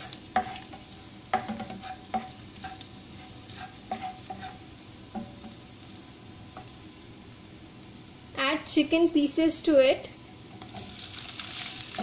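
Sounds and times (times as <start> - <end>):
garlic sizzling in oil: 0.0 - 12.0
metal ladle scraping pan: 1.4 - 4.6.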